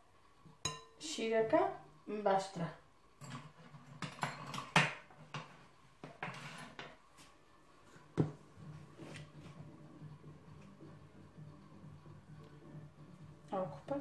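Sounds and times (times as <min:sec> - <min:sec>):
faint low hum: 0:07.3 - 0:14.0.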